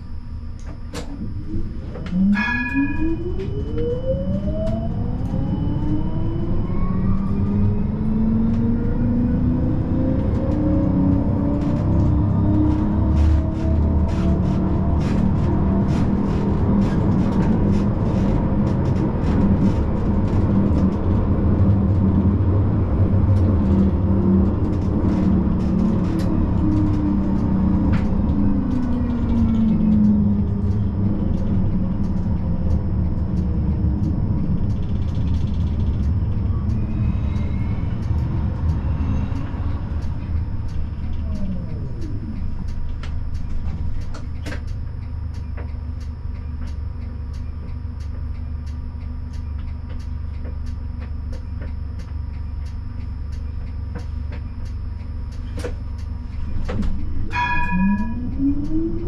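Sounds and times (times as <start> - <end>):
traction motor whine: 0.0 - 45.7
tram wheels rumbling on rails: 0.0 - 59.0.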